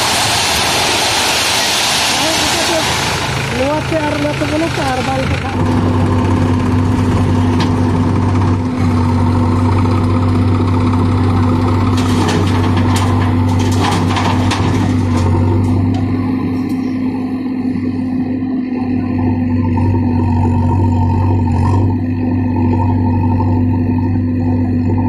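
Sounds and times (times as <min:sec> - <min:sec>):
soil dumping into steel trailer: 0:00.0 - 0:04.0, 0:11.6 - 0:16.2
diesel engine running under load: 0:00.0 - 0:25.0.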